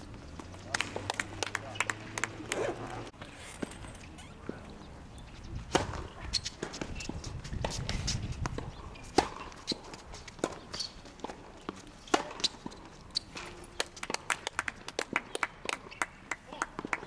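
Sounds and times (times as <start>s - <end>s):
racket striking tennis ball: 5.7s - 13.8s
tennis ball bouncing: 5.7s - 14.3s.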